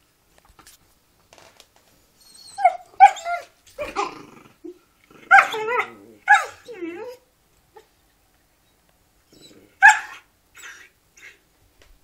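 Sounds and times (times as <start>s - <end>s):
dog yelping barks: 2.5s - 4.1s, 5.2s - 7.2s, 9.4s - 11.4s
dog growling: 3.8s - 7.2s, 9.3s - 9.8s.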